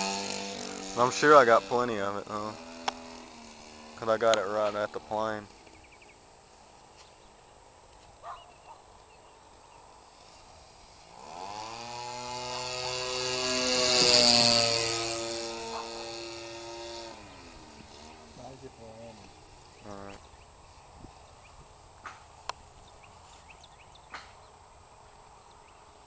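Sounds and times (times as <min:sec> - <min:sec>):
model airplane engine flying past: 0:00.0 - 0:07.3, 0:09.0 - 0:21.9.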